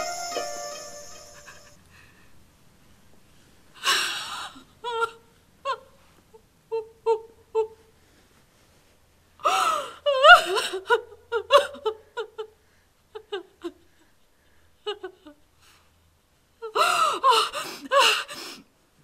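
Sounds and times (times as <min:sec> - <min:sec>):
woman sobbing: 0:09.4 - 0:12.6, 0:16.6 - 0:18.6.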